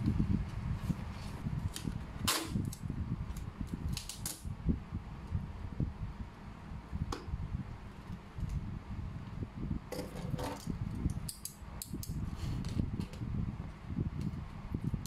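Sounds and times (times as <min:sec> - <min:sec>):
clicks and crackles of tape and box: 0:00.5 - 0:04.5, 0:10.0 - 0:13.3
packing tape ripping off roll: 0:01.2 - 0:04.5.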